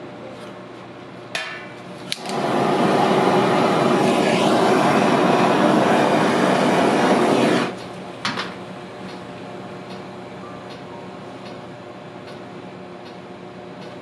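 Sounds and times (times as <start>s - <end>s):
kitchen torch hissing: 2.1s - 7.9s.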